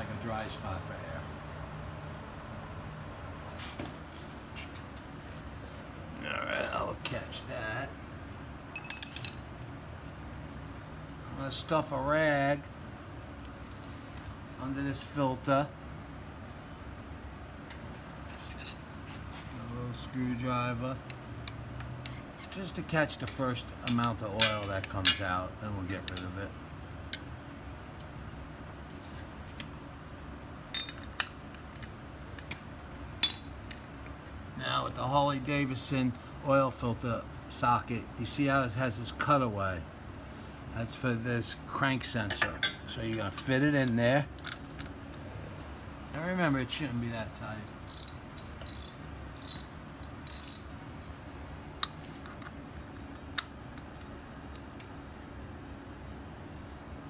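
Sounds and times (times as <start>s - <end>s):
metallic clinks of hand tools: 8.8s - 9.4s
hand ratchet clicking: 47.8s - 50.7s.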